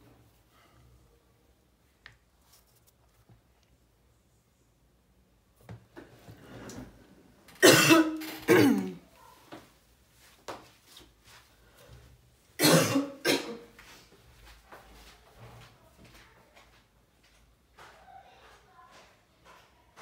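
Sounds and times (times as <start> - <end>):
person coughing: 7.6 - 9.0, 12.6 - 13.7.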